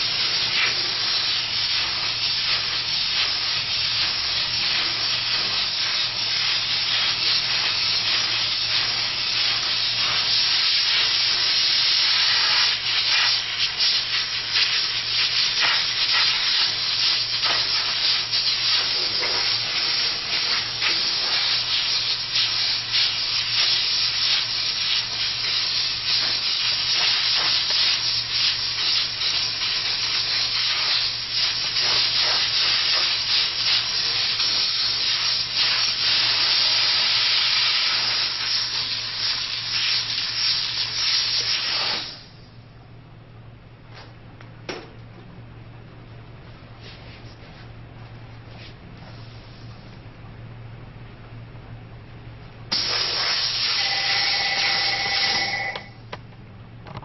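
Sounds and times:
steam cleaner hissing: 0.0 - 42.4, 52.7 - 56.0.

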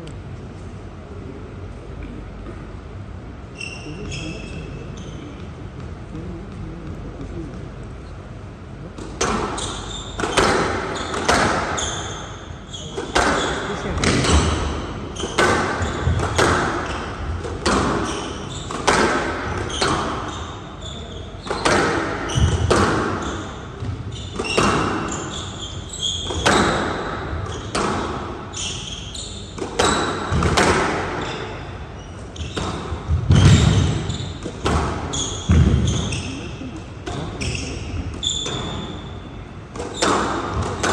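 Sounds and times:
shoes squeaking on court floor: 3.5 - 5.9, 9.2 - 40.9
squash ball hits echoing: 9.0 - 40.9.

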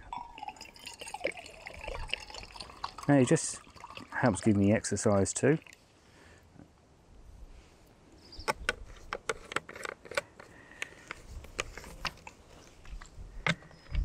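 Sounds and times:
camp gear clicking and knocking: 8.4 - 14.0.

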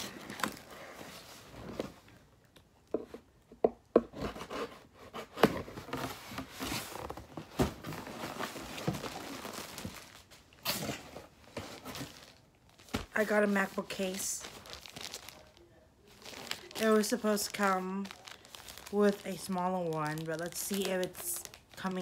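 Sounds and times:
plastic packaging crinkling: 8.0 - 10.4, 11.7 - 22.0.

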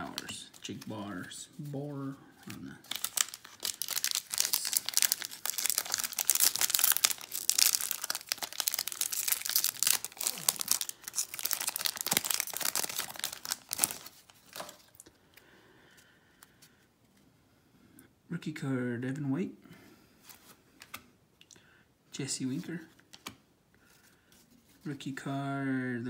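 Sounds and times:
foil wrapper tearing and crinkling: 2.8 - 15.0.

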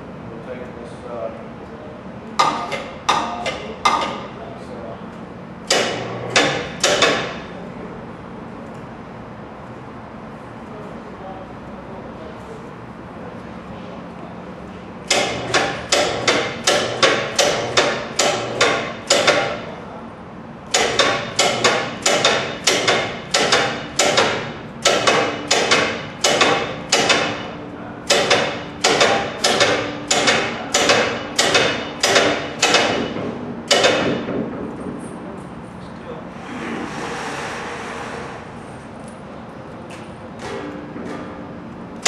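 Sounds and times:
hammer striking metal: 5.7 - 7.5, 15.1 - 19.7, 20.7 - 34.4.

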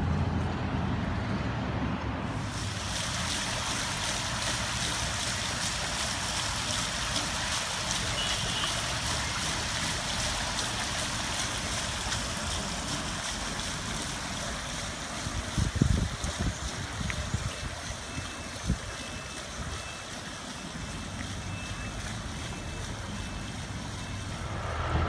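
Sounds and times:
fountain water splashing: 2.3 - 24.9.

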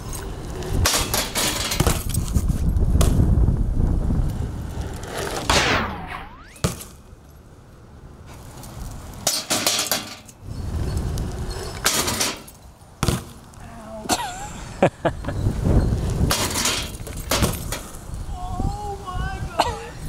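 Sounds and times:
bike clanking on metal ramp: 0.8 - 2.2, 9.2 - 10.4, 11.5 - 13.4, 16.3 - 18.0.

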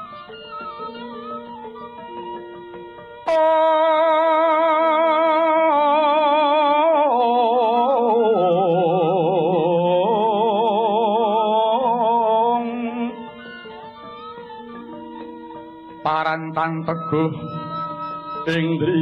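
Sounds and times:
quiet instrumental accompaniment: 0.0 - 19.0
person singing with wavering vibrato: 3.3 - 13.8, 15.9 - 19.0.

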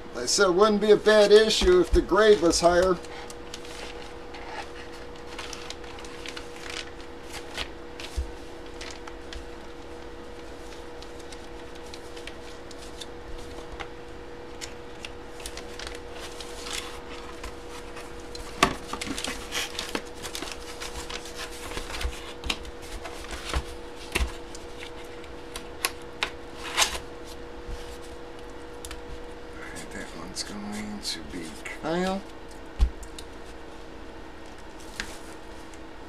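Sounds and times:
steady low hum: 0.0 - 36.0
packaging rustling and crinkling: 1.1 - 13.9, 14.5 - 25.3.

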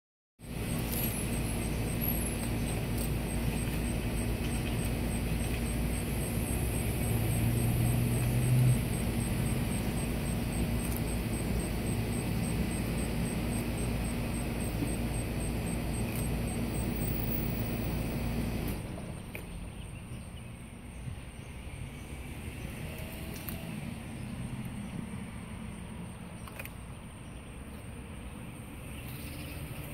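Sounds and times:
faint hum: 0.4 - 29.9
low outdoor rumble: 0.4 - 29.9
loud low drone: 0.5 - 18.9.

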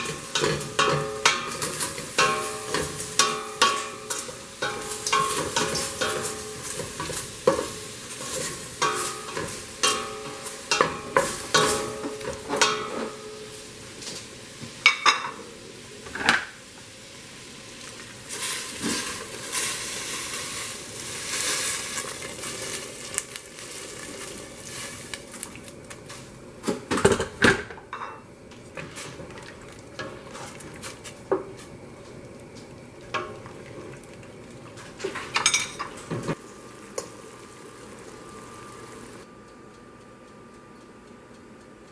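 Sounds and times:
beef sizzling in oil: 0.0 - 26.3, 34.8 - 39.2
boiling water poured in: 17.8 - 25.8, 29.0 - 31.3, 32.2 - 35.5, 36.4 - 39.2.

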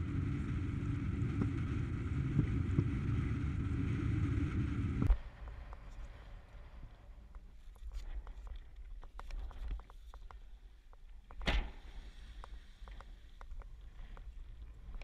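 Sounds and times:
wind buffeting microphone: 0.0 - 5.6
click: 12.4 - 14.3.

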